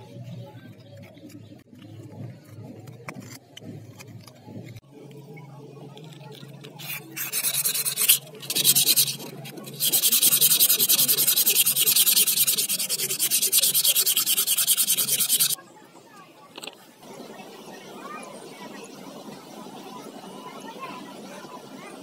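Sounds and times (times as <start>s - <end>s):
sandpaper handling: 6.8s - 15.6s
sandpaper scrubbing metal blade: 6.8s - 15.6s.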